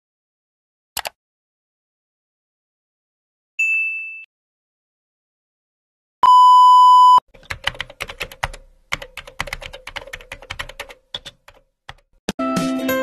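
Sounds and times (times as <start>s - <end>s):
keyboard typing clicks: 1.0s - 1.2s, 7.4s - 12.1s.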